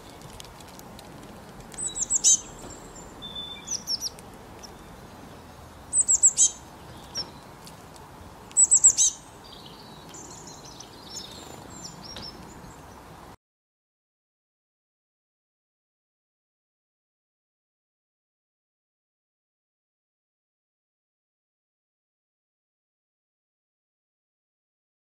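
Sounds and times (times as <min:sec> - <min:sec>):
songbirds chirping: 0:00.0 - 0:13.4
soft bird twittering: 0:01.8 - 0:07.6, 0:08.5 - 0:13.0.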